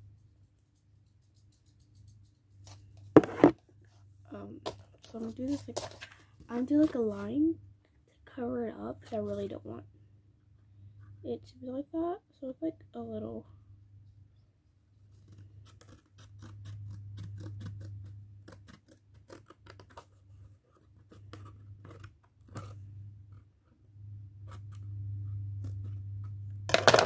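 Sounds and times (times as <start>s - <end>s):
scissors snipping cardboard: 15.1s - 22.8s
low steady hum: 19.7s - 27.0s.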